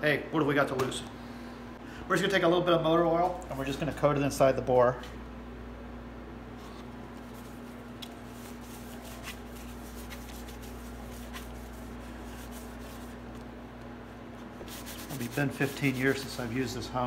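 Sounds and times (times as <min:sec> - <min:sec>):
steady low hum: 0:00.0 - 0:17.0
gloved hand rubbing metal: 0:07.2 - 0:13.4, 0:14.5 - 0:16.6.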